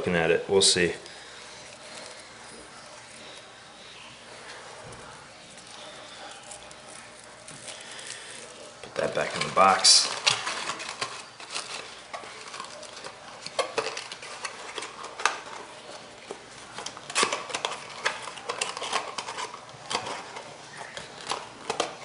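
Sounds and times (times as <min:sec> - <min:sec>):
paper packing rustling: 0:00.8 - 0:22.0
cardboard box being folded: 0:05.4 - 0:21.6.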